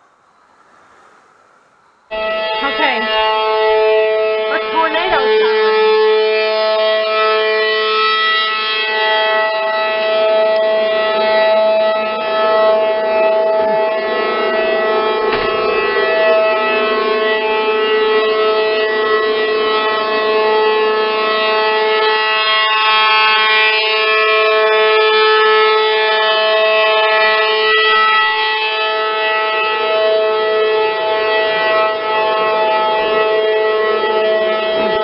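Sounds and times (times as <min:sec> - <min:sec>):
warning siren wailing: 0:00.0 - 0:35.0.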